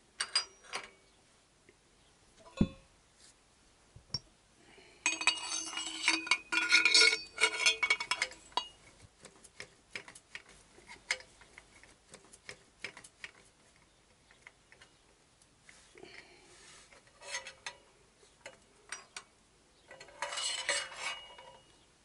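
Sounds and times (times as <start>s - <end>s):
metal pipes clinking together: 0.2s - 1.0s, 5.0s - 8.8s, 17.2s - 17.8s, 18.4s - 19.3s, 19.9s - 21.7s.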